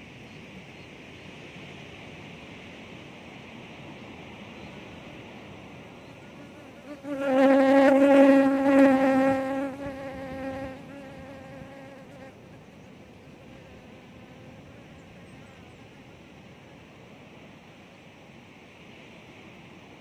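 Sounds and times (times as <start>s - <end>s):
flying insect buzzing: 6.2s - 12.7s.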